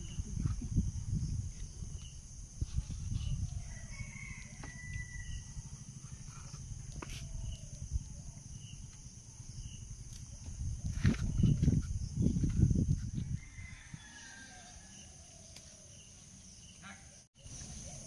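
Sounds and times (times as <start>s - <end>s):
high insect drone: 0.0s - 18.0s
distant rooster crowing: 3.5s - 5.7s, 13.2s - 15.5s.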